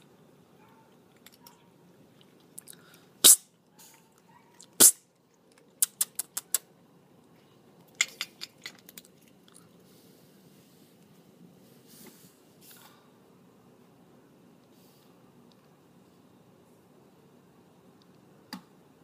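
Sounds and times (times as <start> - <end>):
kitten crunching dry kibble: 7.8 - 10.0.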